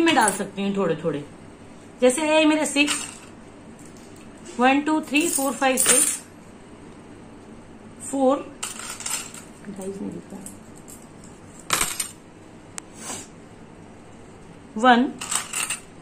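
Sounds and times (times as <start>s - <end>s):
coins clinking: 0.0s - 0.5s, 2.8s - 3.3s, 5.0s - 6.3s, 8.6s - 12.2s, 15.2s - 15.9s
jingle of coins: 5.0s - 6.3s.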